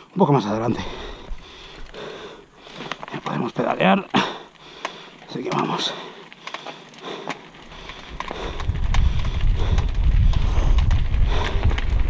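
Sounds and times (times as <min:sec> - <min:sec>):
bike tyres crunching on gravel: 0:00.2 - 0:12.0
wind rumble on microphone: 0:07.8 - 0:12.0.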